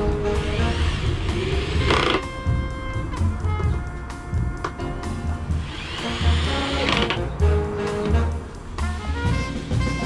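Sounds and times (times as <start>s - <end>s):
background music with low beat: 0.0s - 10.0s.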